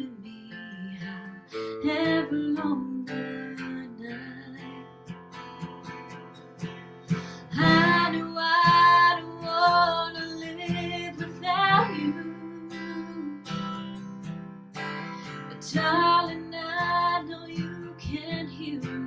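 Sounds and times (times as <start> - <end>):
strummed acoustic guitar: 0.0 - 19.0.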